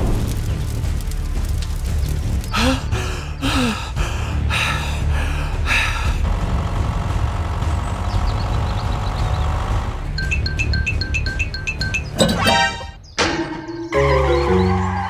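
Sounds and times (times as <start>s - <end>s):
railway crossing signal beeping: 10.1s - 13.0s.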